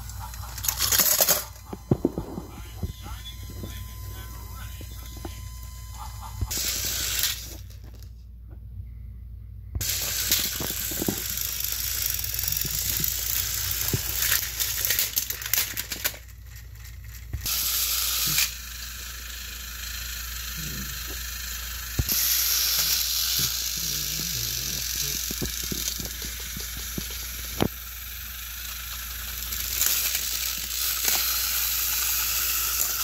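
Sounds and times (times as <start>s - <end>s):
toy train motors whirring: 0.0s - 8.1s, 9.8s - 33.0s
plastic clicks and clatter: 12.4s - 17.5s.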